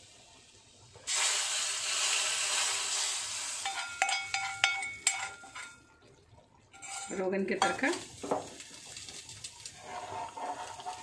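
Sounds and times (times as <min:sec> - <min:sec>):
hot oil sizzling: 0:00.0 - 0:06.0, 0:06.7 - 0:11.0
steel spoon clinking on pan: 0:03.6 - 0:05.8, 0:06.8 - 0:07.9.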